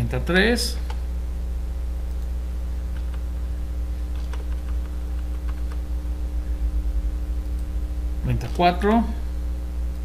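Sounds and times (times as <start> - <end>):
low electrical hum: 0.0 - 10.0
faint keyboard keystrokes: 2.9 - 3.3, 4.1 - 5.8.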